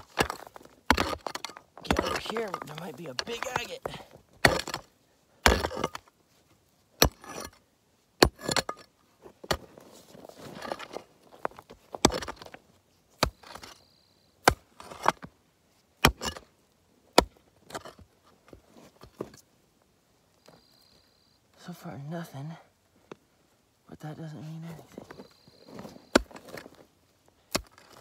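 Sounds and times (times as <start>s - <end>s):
pick striking rocky ground: 0.0s - 6.2s, 6.9s - 7.6s, 8.2s - 13.8s, 14.4s - 15.4s, 16.0s - 19.5s, 24.7s - 28.0s
stones scraping and rattling: 0.0s - 6.2s, 7.0s - 7.6s, 8.2s - 13.8s, 14.5s - 15.4s, 16.0s - 16.5s, 17.2s - 19.5s, 24.7s - 28.0s.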